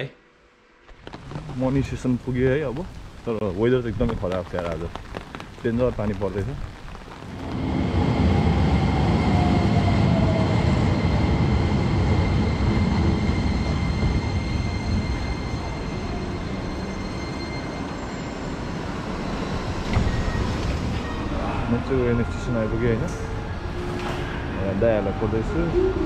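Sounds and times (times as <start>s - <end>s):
train rumbling: 0.8s - 26.0s
high whines: 7.3s - 26.0s.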